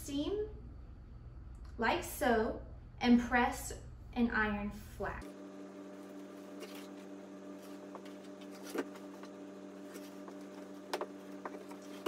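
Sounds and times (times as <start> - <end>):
steady low hum: 0.0 - 12.0
iron rubbing over fabric: 5.9 - 12.0.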